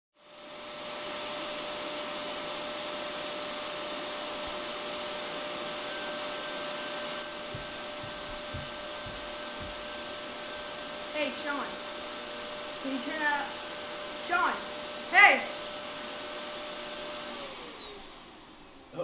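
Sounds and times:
vacuum cleaner running: 0.2s - 19.0s
soft low bumps: 7.4s - 10.2s.

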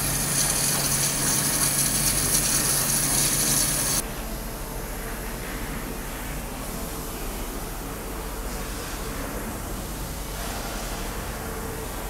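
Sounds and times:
waterjet cutter hissing: 0.0s - 4.0s.

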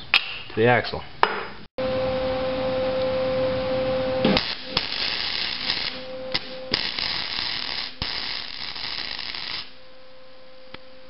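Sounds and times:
welding arc crackling: 4.2s - 9.8s.

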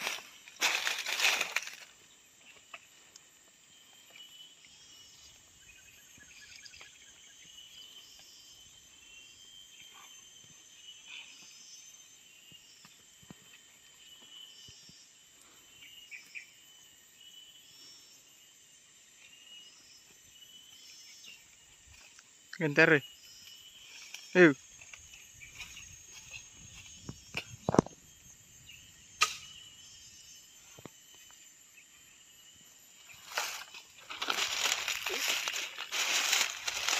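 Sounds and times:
insect chirps: 0.0s - 36.9s
insects trilling: 0.0s - 36.9s.

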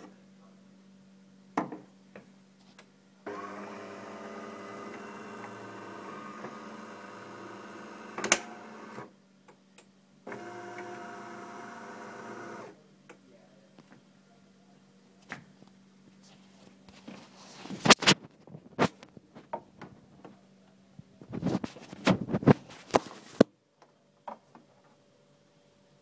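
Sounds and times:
coffee machine buzzing: 3.2s - 9.1s, 10.3s - 12.8s.

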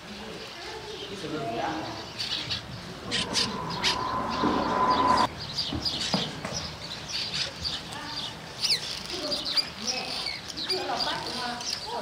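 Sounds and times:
steady whine with hiss: 2.7s - 5.3s.

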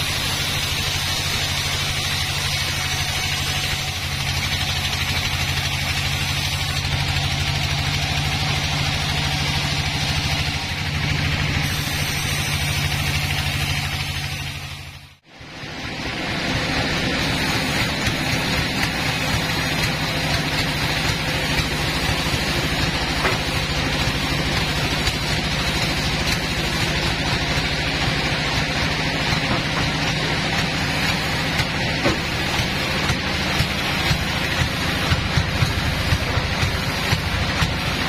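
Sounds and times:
sawmill machinery running: 0.0s - 38.0s.

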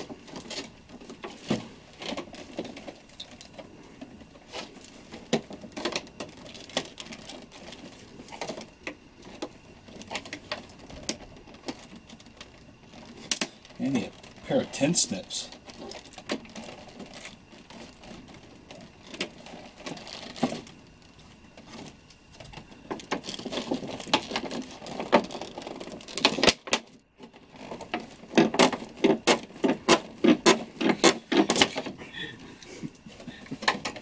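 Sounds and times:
plastic packaging crinkling: 0.0s - 34.0s.

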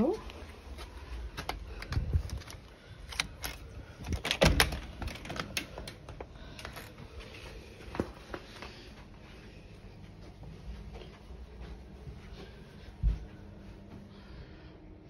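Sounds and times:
door clicks and knocks: 4.1s - 5.4s.

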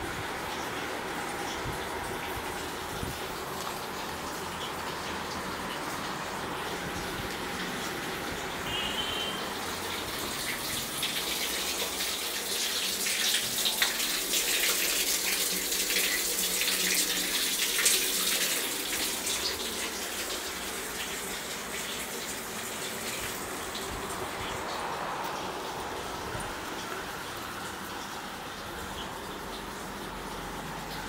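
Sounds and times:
tap water splashing on cloth: 8.8s - 27.1s.

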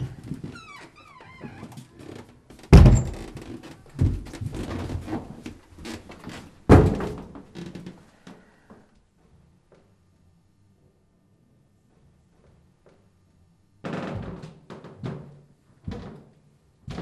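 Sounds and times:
wardrobe door thunking: 2.7s - 3.4s.

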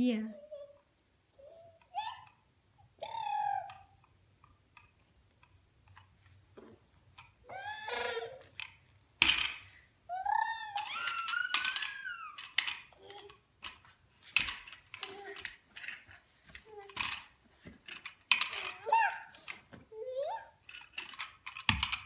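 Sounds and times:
baby babbling and squealing: 3.0s - 3.9s, 7.5s - 8.5s, 10.1s - 12.4s
plastic toy cars knocking: 8.5s - 9.8s, 10.8s - 19.8s, 20.6s - 22.0s.

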